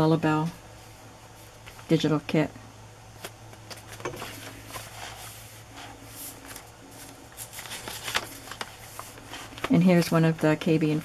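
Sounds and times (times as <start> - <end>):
paper pages rustling: 3.2 - 11.0.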